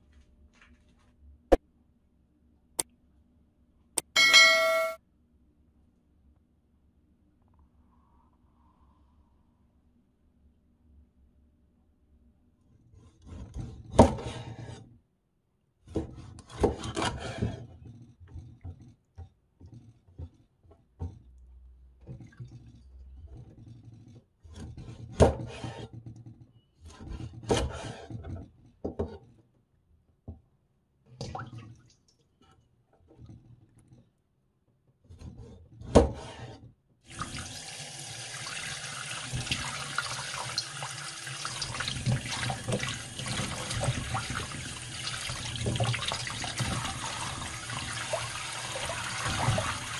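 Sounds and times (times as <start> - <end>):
tap water running: 37.1 - 49.9.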